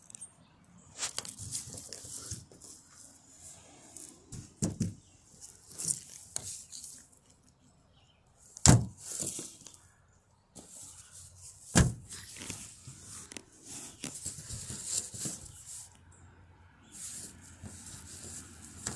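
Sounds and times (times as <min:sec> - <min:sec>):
plush toy rustling: 0:01.0 - 0:07.2, 0:10.6 - 0:15.9.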